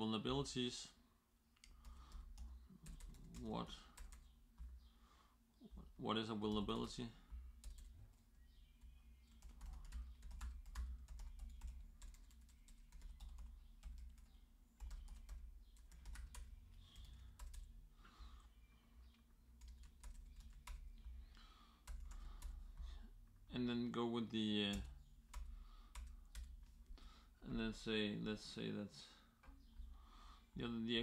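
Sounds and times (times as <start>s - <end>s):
typing on keyboard: 1.6s - 4.8s, 6.5s - 8.2s, 8.8s - 17.8s, 19.6s - 21.1s, 21.8s - 22.9s, 24.7s - 26.8s.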